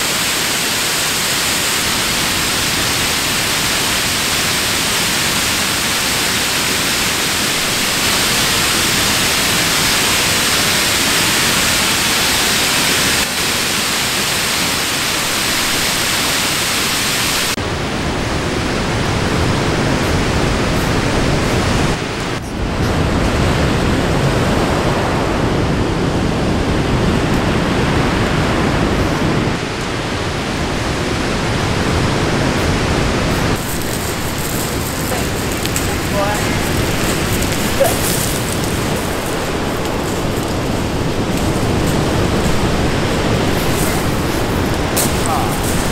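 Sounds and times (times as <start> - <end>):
waterfall pouring: 0.0 - 17.6, 33.5 - 45.9
surf breaking on pebble beach: 31.8 - 45.9.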